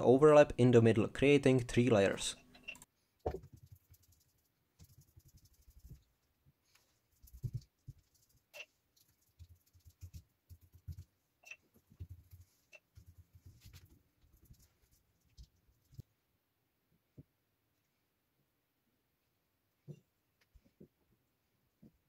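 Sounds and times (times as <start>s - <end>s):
paintbrush dabbing: 3.2s - 11.3s, 11.9s - 16.0s.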